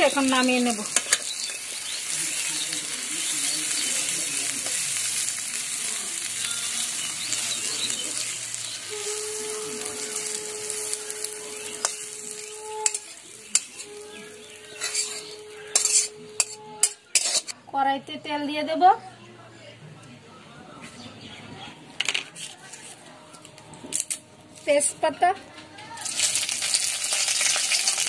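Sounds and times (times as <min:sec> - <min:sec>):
hot oil sizzling: 0:00.0 - 0:17.6, 0:26.0 - 0:28.0
metal spatula scraping pan: 0:08.9 - 0:17.6
spatula clinking on pan: 0:14.8 - 0:17.5.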